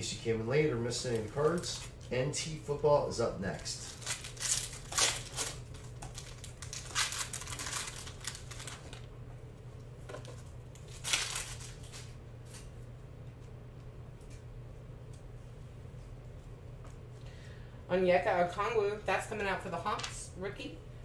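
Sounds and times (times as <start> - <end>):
foil wrapper crinkling: 0.8 - 2.2, 3.5 - 9.1, 10.2 - 12.7.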